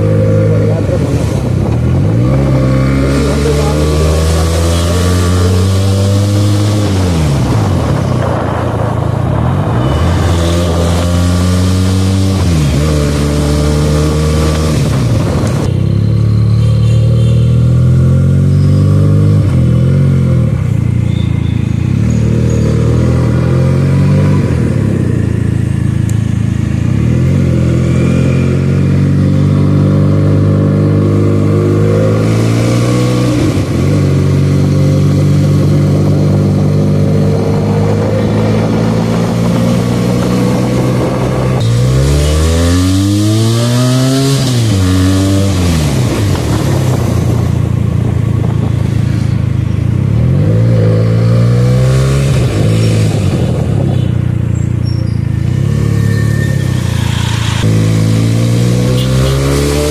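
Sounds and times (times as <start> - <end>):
wind rushing over microphone: 0.0 - 3.1, 5.2 - 13.6, 14.2 - 15.8, 32.1 - 42.0, 42.7 - 54.2
motorcycle engine revving: 0.0 - 59.9.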